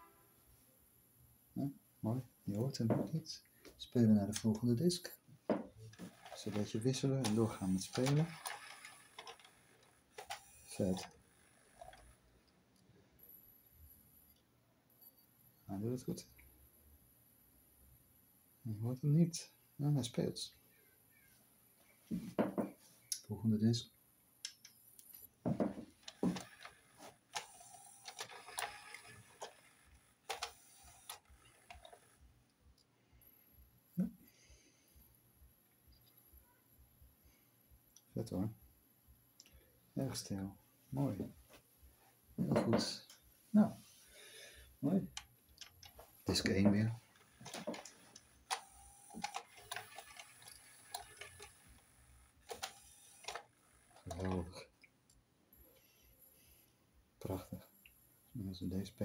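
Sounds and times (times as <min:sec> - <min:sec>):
plastic gears clicking: 0:05.8 - 0:12.2, 0:25.9 - 0:32.2, 0:45.0 - 0:46.5, 0:47.1 - 0:54.6
small motor whirring: 0:06.0 - 0:12.3, 0:26.0 - 0:32.2, 0:47.0 - 0:54.2.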